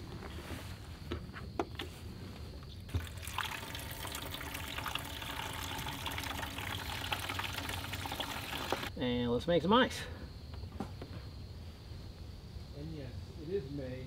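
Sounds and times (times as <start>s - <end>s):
water trickling into reservoir: 2.9s - 8.9s.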